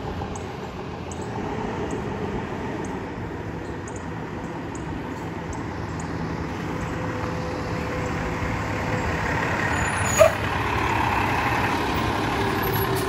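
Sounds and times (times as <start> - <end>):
garbage truck engine: 0.0 - 13.0.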